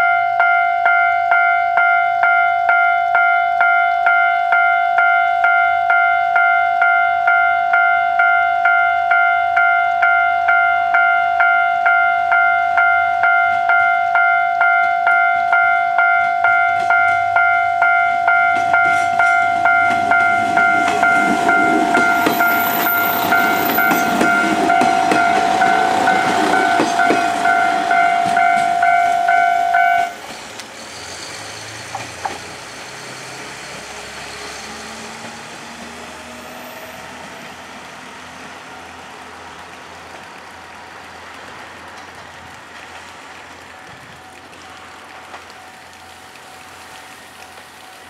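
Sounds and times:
level-crossing warning bell: 0.0 - 30.2
railcar wheels clicking over joints: 14.6 - 30.8.

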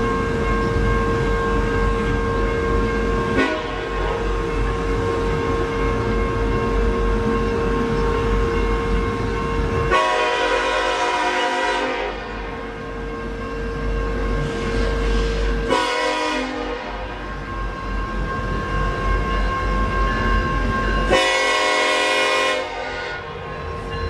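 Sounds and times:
train horn chord: 3.3 - 4.2, 9.9 - 12.5, 15.2 - 17.2, 21.1 - 23.3.

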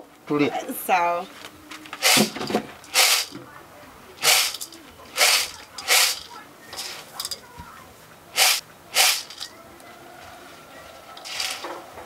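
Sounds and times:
short sharp hissing bursts: 2.0 - 3.4, 4.2 - 4.6, 5.2 - 7.0, 8.4 - 9.4.

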